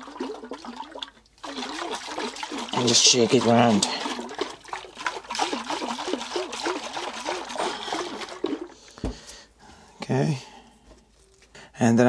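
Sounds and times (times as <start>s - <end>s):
liquid sloshing in fuel tank: 0.0s - 9.1s.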